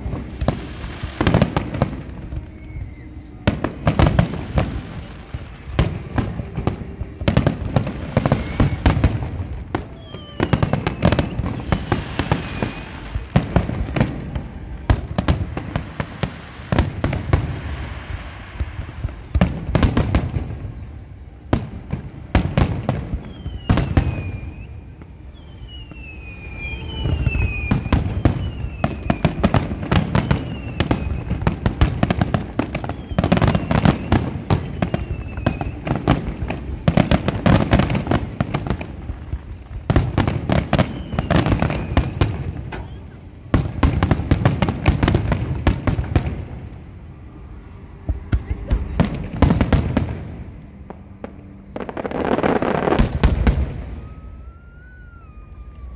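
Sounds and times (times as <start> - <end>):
falling firework whistles: 0.0 - 46.5, 47.2 - 55.9
fireworks bursting: 0.0 - 55.9.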